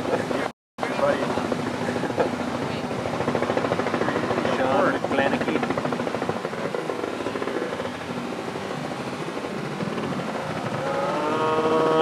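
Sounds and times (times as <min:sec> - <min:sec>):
engine noise: 0:00.0 - 0:12.0
person's long held shout: 0:10.8 - 0:12.0.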